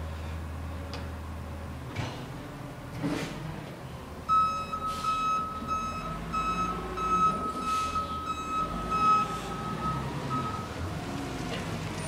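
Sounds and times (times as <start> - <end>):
reversing alarm beeping: 4.3 - 10.8.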